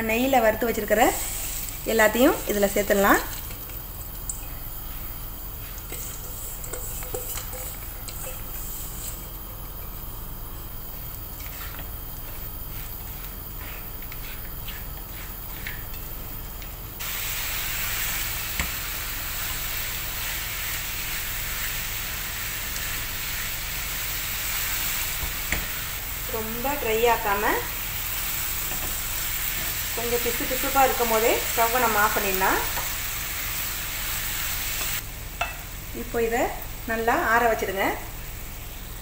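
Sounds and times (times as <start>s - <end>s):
filling sizzling in a pan: 0.0s - 39.0s
wooden spatula scraping a pan: 5.6s - 9.3s.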